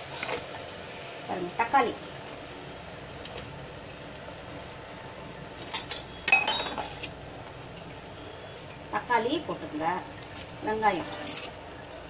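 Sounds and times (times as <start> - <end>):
metal spoon clinking on pot: 5.7 - 7.0.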